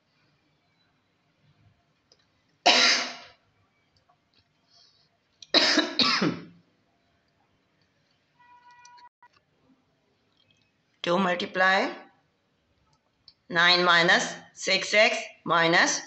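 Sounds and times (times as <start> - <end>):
person coughing: 2.7 - 3.3, 5.5 - 6.5.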